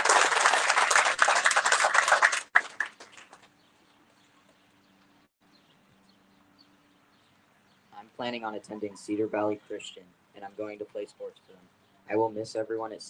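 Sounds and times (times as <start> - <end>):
audience applauding: 0.0 - 3.5.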